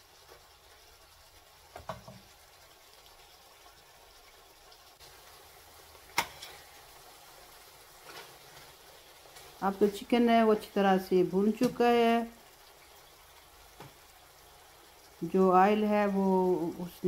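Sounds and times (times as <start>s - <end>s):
food sizzling in a pan: 0.0s - 17.0s
metal spatula scraping a pan: 6.2s - 6.8s.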